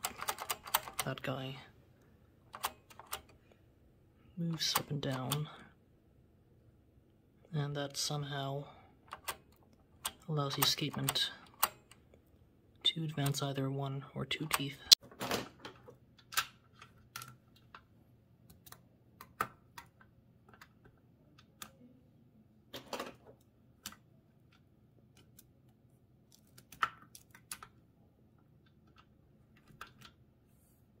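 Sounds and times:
typewriter mechanism clicking: 0.0s - 1.2s.

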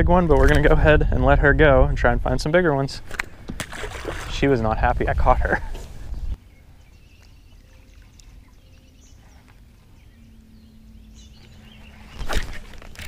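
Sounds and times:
faint bird chirps: 6.2s - 12.4s.

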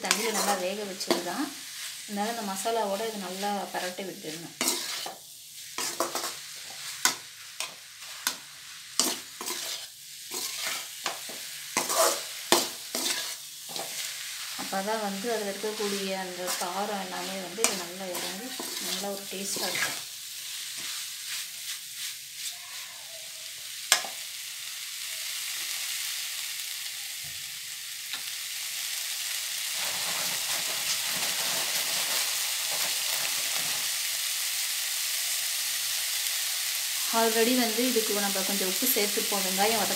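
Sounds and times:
frying sizzle: 0.0s - 39.9s
metal ladle scraping a pan: 0.1s - 1.2s, 4.6s - 5.2s, 9.0s - 14.2s, 15.7s - 20.0s.

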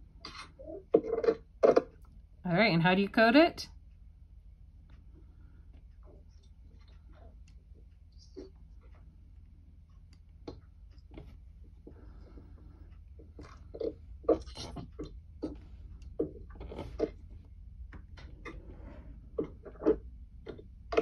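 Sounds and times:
low steady hum: 0.0s - 21.0s
small clicks and taps: 4.8s - 18.6s, 19.4s - 21.0s.

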